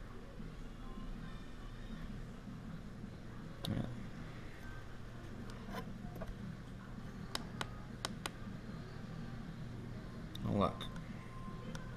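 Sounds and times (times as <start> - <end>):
faint low hum: 0.0 - 11.9.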